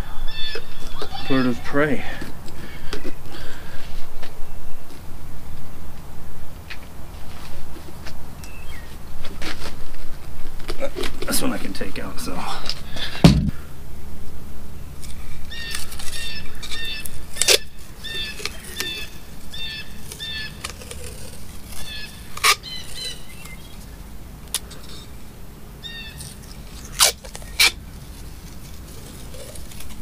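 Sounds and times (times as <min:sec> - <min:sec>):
masking tape crackling off roll: 0:15.0 - 0:25.0, 0:25.8 - 0:30.0
small bird chirping: 0:15.5 - 0:24.0, 0:25.8 - 0:26.7.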